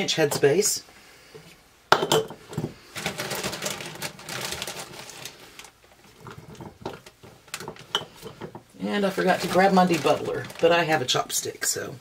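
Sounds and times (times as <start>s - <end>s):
glass jars clattering: 1.9s - 2.7s, 6.2s - 8.7s.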